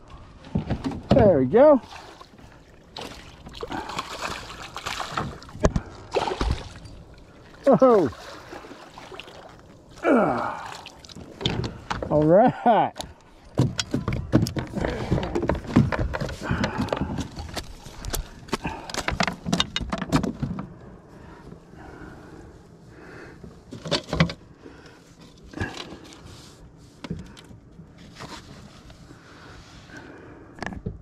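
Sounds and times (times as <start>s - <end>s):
fish handling knocks and rustles: 3.0s - 7.0s, 11.1s - 12.3s, 13.4s - 20.8s.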